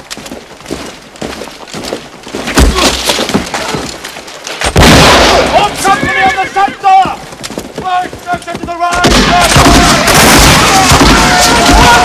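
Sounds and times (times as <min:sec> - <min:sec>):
cracks snaps and crashes: 0:02.5 - 0:05.4.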